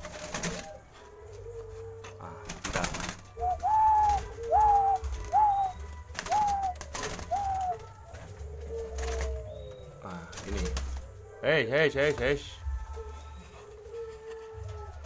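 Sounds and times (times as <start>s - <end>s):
low drawn-out coo: 0.0s - 11.4s, 12.6s - 15.0s
short rising falling dove notes: 3.4s - 7.9s.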